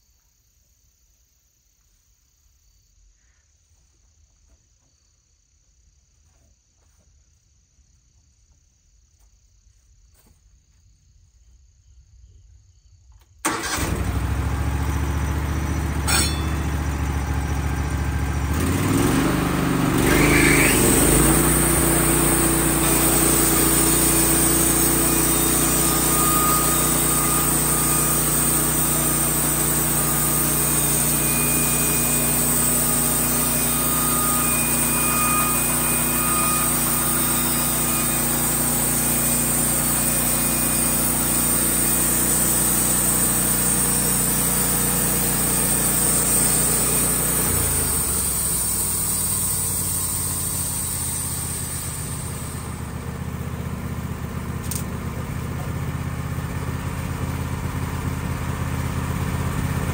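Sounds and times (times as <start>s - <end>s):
bandsaw mill cutting wood: 13.5s - 59.9s.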